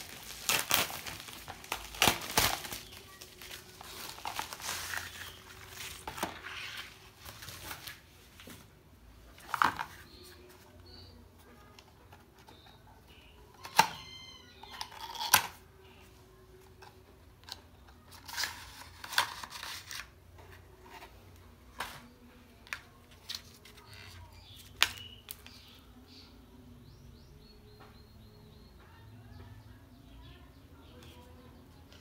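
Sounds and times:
cardboard packaging rustling: 0.0s - 8.7s.

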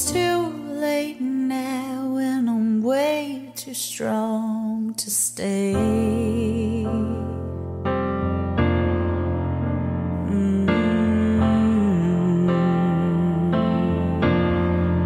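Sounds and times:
woman singing pop song: 0.0s - 7.4s, 10.2s - 14.6s.

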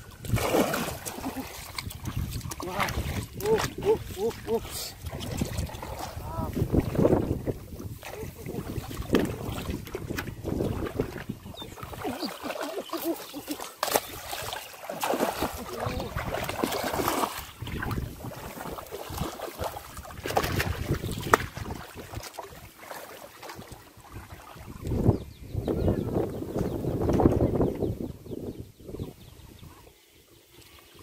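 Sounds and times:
water sloshing and splashing: 0.0s - 25.3s
feet wading through mud: 0.1s - 24.8s.

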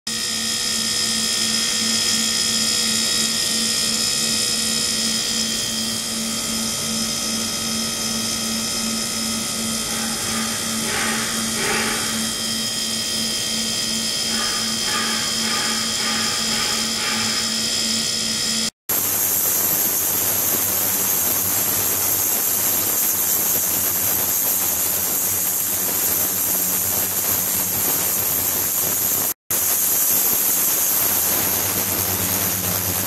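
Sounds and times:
ultrasonic cleaner high-pitched whine: 0.1s - 33.0s
low pulsing hum: 5.6s - 18.5s.

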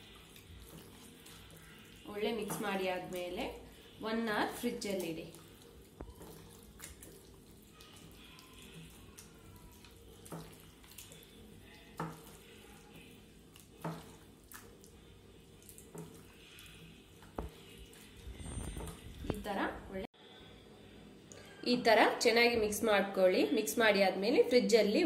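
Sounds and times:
wet squelching of marinade: 0.0s - 19.6s.

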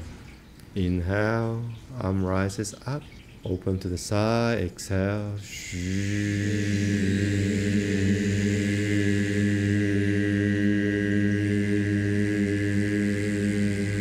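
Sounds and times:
man holding low vocal tone: 4.7s - 14.0s.

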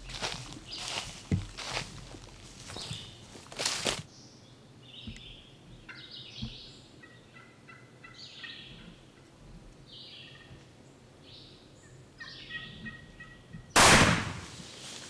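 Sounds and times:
footsteps crunching dry leaves: 0.0s - 4.1s, 14.2s - 15.0s
turkey gobbling: 5.8s - 6.2s, 7.0s - 9.3s, 10.3s - 10.5s, 12.2s - 13.7s.

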